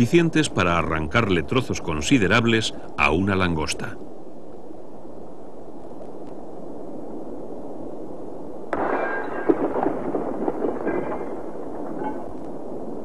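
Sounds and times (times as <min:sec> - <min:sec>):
burst of cracks and pops: 0:08.7 - 0:13.0.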